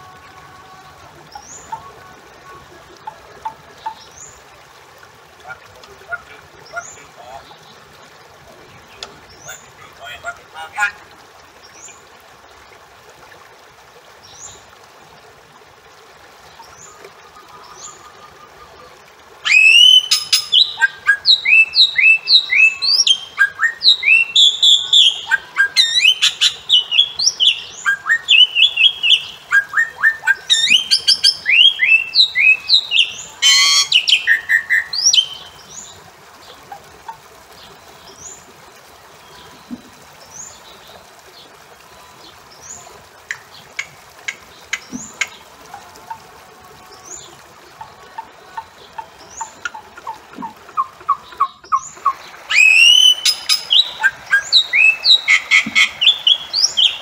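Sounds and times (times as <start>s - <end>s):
myna calling: 8.8s - 11.1s, 16.9s - 35.5s, 47.7s - 57.0s
rising whistled bird notes: 19.4s - 25.2s, 52.5s - 57.0s.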